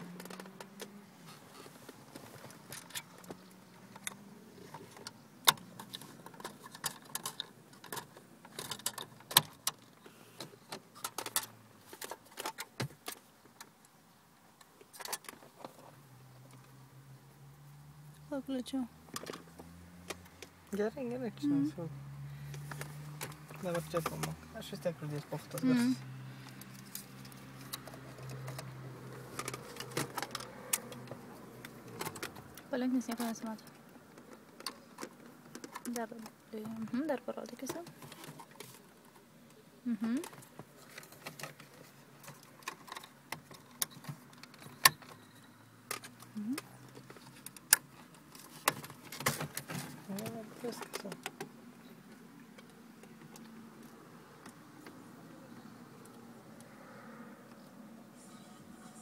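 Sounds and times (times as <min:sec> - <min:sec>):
metal casing clicking and rattling: 0:04.8 - 0:10.0.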